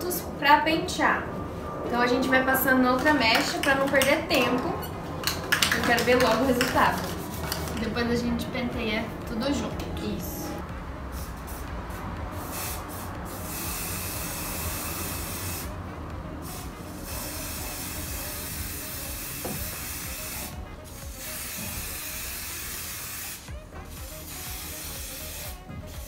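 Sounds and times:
aerosol spray hissing: 12.4 - 15.7, 16.4 - 26.0.

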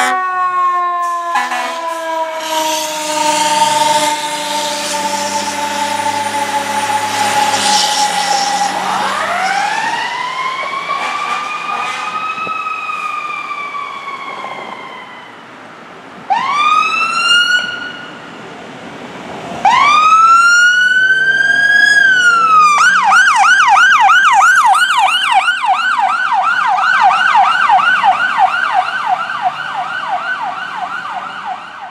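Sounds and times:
siren switching to fast yelp: 0.0 - 15.0, 19.7 - 31.9
fire engine siren wail: 0.0 - 18.4, 19.5 - 31.9.

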